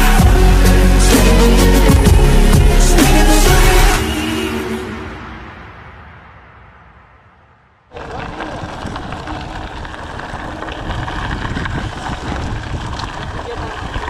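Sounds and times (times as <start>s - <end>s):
background music: 0.0s - 5.9s
bike rattling and tyre noise: 7.9s - 14.0s
wind buffeting microphone: 7.9s - 14.0s.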